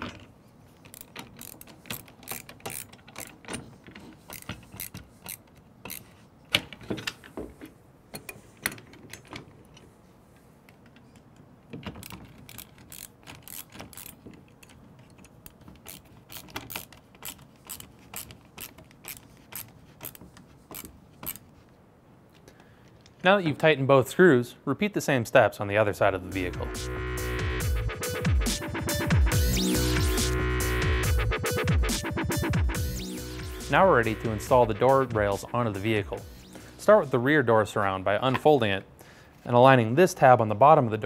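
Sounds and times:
screwdriver metallic clicks: 0.0s - 7.2s, 10.7s - 21.4s.

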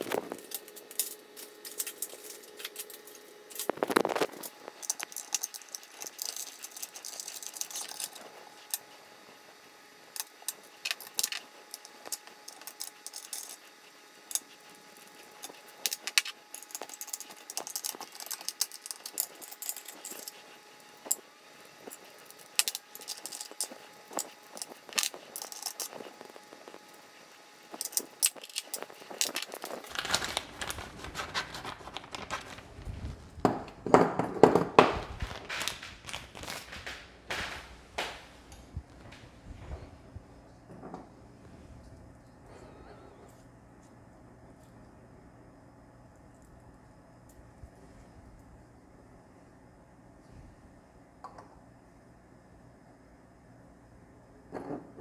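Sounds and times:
screws and hex key clinking on metal: 15.4s - 20.4s.

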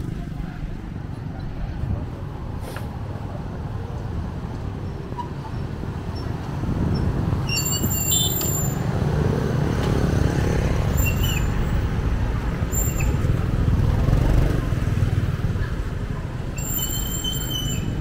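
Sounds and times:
motorbike and car engines passing: 8.7s - 16.5s.

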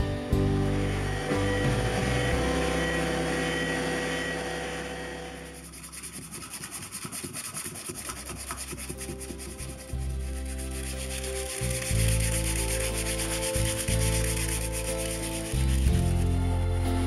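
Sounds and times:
steady hum: 0.0s - 7.1s
sandpaper scratching on wood: 5.4s - 16.4s.

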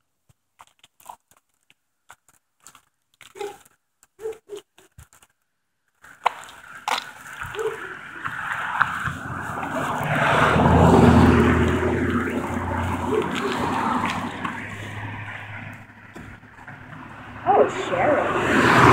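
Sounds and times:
footsteps crunching on asphalt: 0.3s - 5.4s, 6.0s - 17.4s
rushing noise with low hum: 7.4s - 18.9s.

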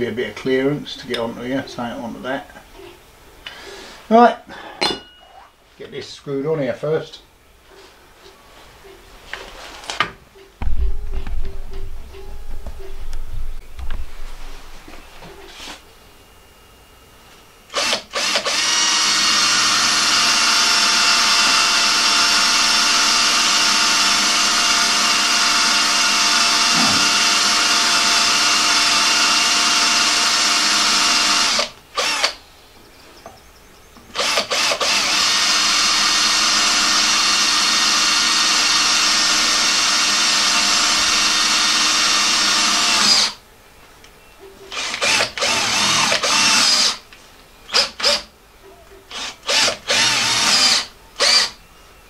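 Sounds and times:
cordless drill whining: 17.7s - 32.4s, 34.1s - 43.4s, 44.7s - 47.0s, 47.7s - 48.3s, 49.1s - 51.6s
drill trigger blips: 17.7s - 32.4s, 34.2s - 38.2s, 44.7s - 47.0s, 49.0s - 51.6s.

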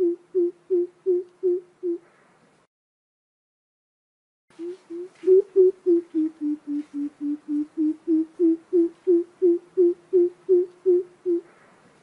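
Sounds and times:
bird deep hooting call: 0.0s - 2.0s, 4.6s - 11.5s.

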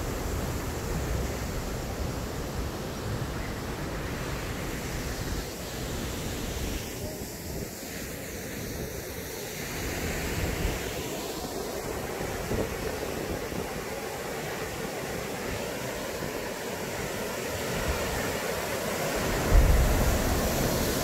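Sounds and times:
waterfall rushing: 9.7s - 21.0s
wind buffeting microphone: 19.2s - 21.0s.

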